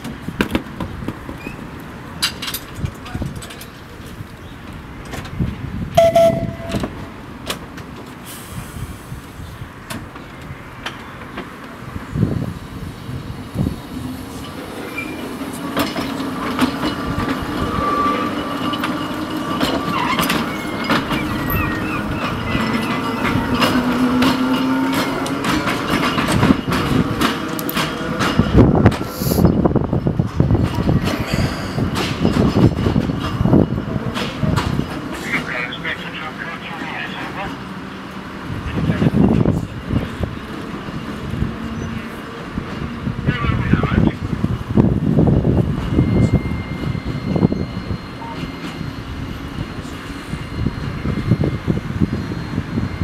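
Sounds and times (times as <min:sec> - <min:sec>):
wheels clicking over rail joints: 0:00.0 - 0:08.2, 0:14.4 - 0:29.1
tram motor whine: 0:03.7 - 0:53.0
brief high tone: 0:06.0 - 0:06.9, 0:45.8 - 0:53.0.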